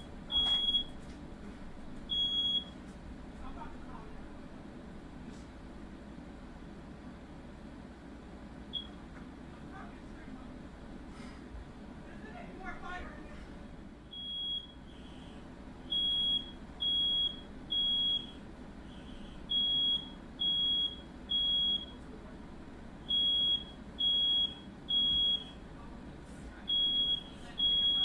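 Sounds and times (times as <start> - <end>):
smoke alarm beeping: 0.0 - 1.0, 2.1 - 2.8, 8.7 - 9.0, 14.1 - 22.0, 23.1 - 25.6, 26.7 - 28.0.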